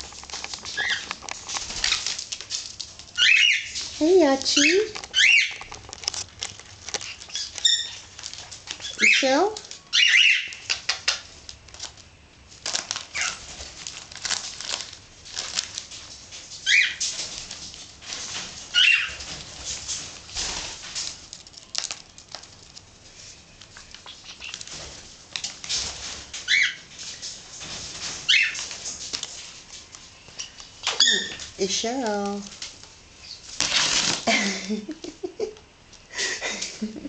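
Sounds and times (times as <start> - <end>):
wrapping paper crinkling: 0.0 - 37.0
parrot chirps: 0.8 - 1.1, 3.2 - 3.8, 4.6 - 5.6, 7.0 - 8.1, 8.8 - 11.2, 16.6 - 17.0, 18.7 - 19.2, 24.0 - 24.7, 26.4 - 26.8, 28.3 - 28.6, 30.4 - 31.5.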